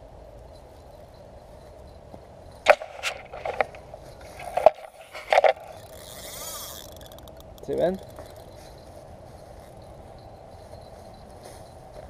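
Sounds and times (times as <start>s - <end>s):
camera handling knocks and bumps: 2.7s - 5.9s.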